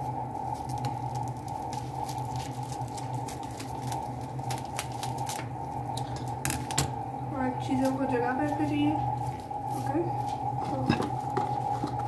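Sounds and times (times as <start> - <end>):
steady background hum: 0.0 - 12.0
cling film crinkling: 0.1 - 6.8
scissors snipping cling film: 0.6 - 6.9.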